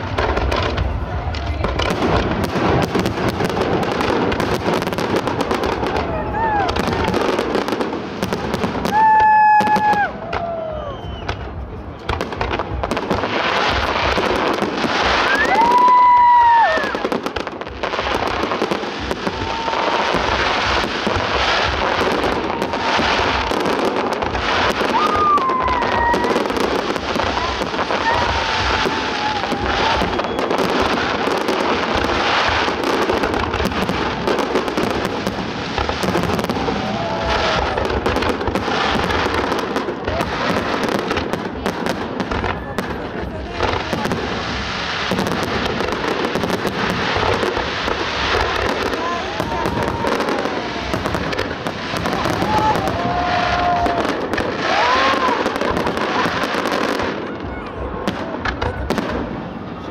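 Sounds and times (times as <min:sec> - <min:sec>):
fireworks bursting and crackling: 0:00.0 - 0:59.9
fireworks whistling: 0:00.0 - 0:59.9.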